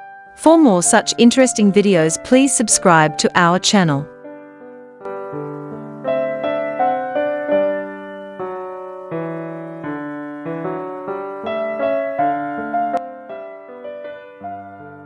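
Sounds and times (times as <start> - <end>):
slow piano music: 0.0 - 15.0.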